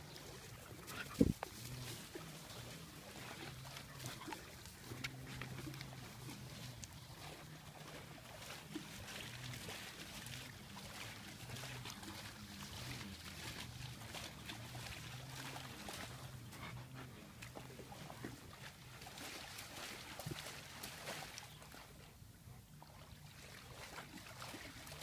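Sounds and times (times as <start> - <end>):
dog panting: 16.4 - 17.2.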